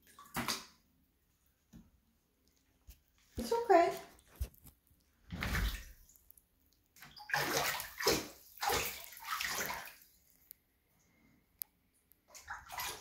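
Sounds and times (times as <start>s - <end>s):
animal splashing in shallow water: 7.1s - 10.2s, 12.3s - 13.0s.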